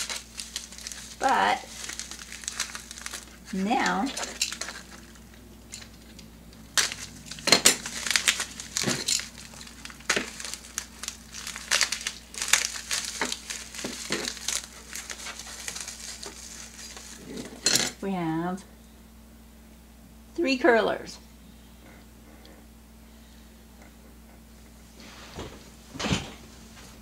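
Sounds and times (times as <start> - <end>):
paper wrapping crinkling: 0.0 - 17.6.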